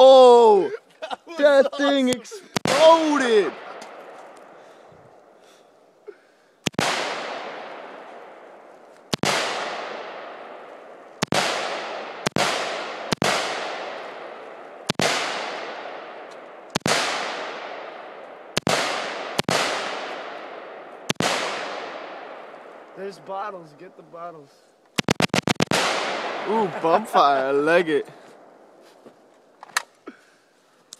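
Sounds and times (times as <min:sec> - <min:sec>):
rifle shots echoing: 0:01.9 - 0:04.7, 0:06.6 - 0:23.1, 0:25.0 - 0:28.6.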